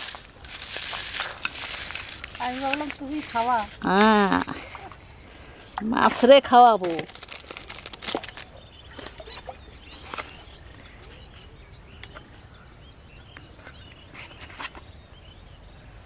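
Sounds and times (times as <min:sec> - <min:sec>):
insect drone: 0:00.0 - 0:16.0
bird chirps: 0:08.1 - 0:15.6.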